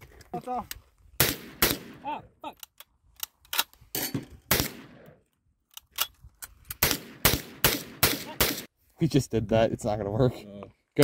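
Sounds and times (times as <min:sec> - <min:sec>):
rifle shots with echo: 0:01.2 - 0:02.0, 0:04.5 - 0:05.2, 0:06.8 - 0:08.7.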